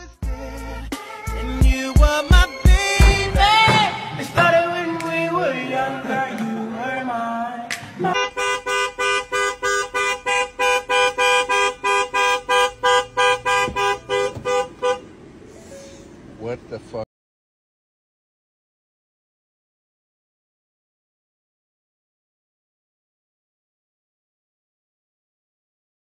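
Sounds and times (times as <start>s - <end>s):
music with singing voice: 0.0s - 8.2s
car horn honking in quick beeps: 8.1s - 15.1s.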